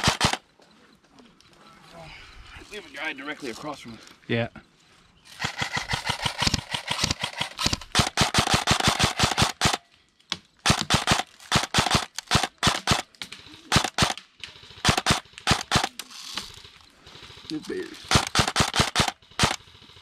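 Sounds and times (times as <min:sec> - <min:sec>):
airsoft guns firing bursts: 0:00.0 - 0:00.4, 0:05.3 - 0:09.9, 0:10.6 - 0:20.0.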